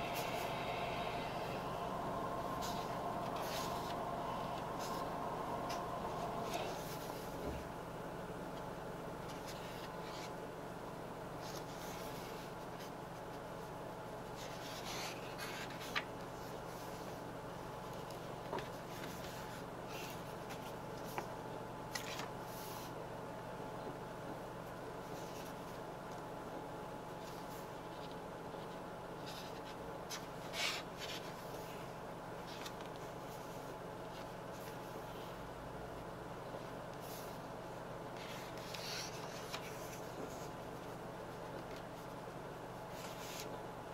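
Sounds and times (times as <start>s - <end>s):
steady low hum: 0.0s - 43.9s
pages turning and rubbing: 0.1s - 7.4s, 38.2s - 42.1s, 42.9s - 43.6s
paper rustling and page turning: 14.4s - 17.2s, 21.9s - 22.9s, 32.4s - 35.3s, 38.2s - 42.2s, 42.9s - 43.6s.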